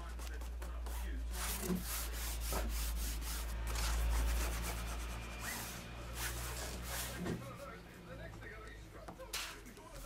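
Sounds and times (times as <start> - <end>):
bone folder rubbing cloth: 0.0 - 7.4.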